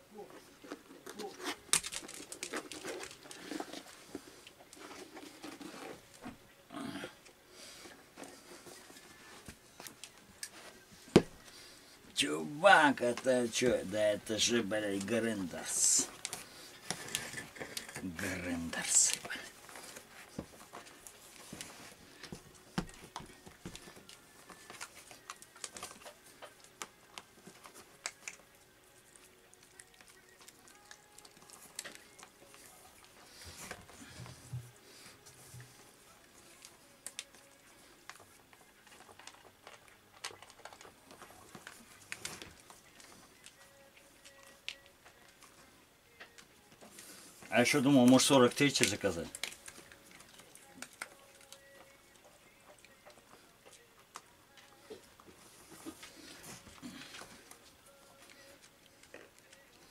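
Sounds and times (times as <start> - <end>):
faint clicks and rustles: 15.0 - 59.9.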